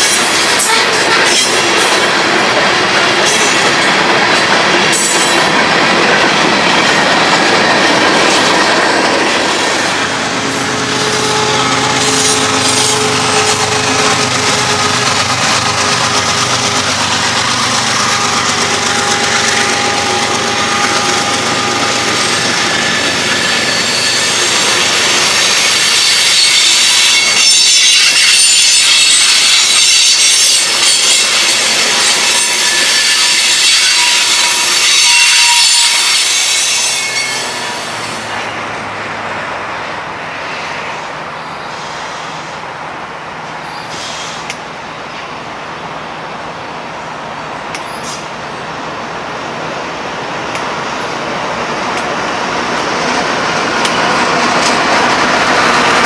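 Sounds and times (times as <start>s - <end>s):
freight train rumbling: 0.0s - 56.0s
train wheels squealing: 9.4s - 38.6s, 40.4s - 42.6s, 43.6s - 44.5s, 47.8s - 48.3s.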